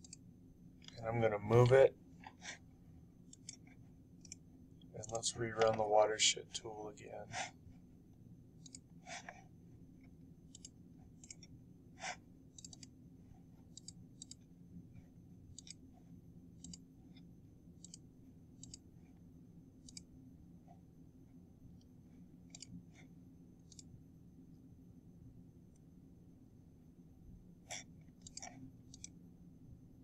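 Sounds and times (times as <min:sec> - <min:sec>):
computer mouse clicking: 0:00.0 - 0:01.0, 0:03.3 - 0:05.8, 0:08.6 - 0:09.4, 0:10.5 - 0:13.0, 0:13.7 - 0:14.5, 0:15.5 - 0:16.0, 0:16.6 - 0:18.9, 0:19.8 - 0:20.1, 0:21.8 - 0:24.0, 0:27.7 - 0:29.2
faint low hum: 0:00.0 - 0:30.0.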